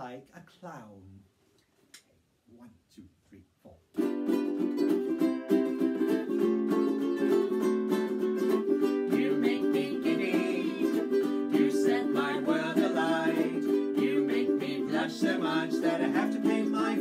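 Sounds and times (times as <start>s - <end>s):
ukuleles strummed: 3.9s - 17.0s
man and woman singing: 9.0s - 17.0s.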